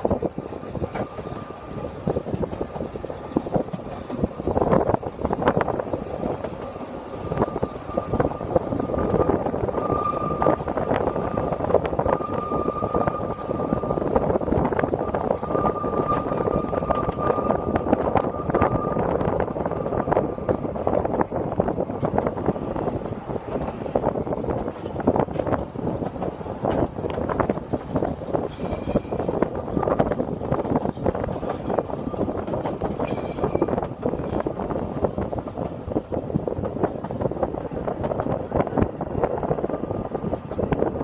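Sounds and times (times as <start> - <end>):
train wheels rattling on rails: 0.0 - 41.0
thin wheel squeal: 15.4 - 19.1.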